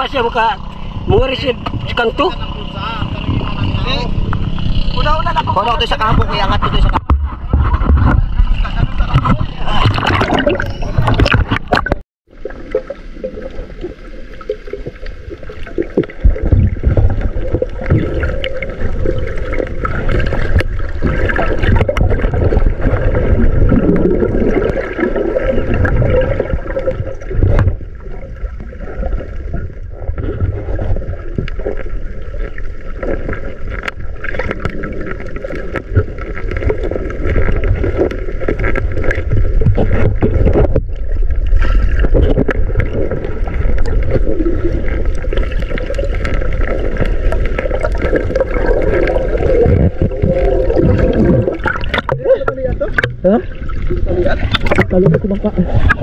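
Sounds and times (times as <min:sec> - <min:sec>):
steady hum: 0:00.0 - 0:38.8
muffled underwater water rumble: 0:00.0 - 0:56.0.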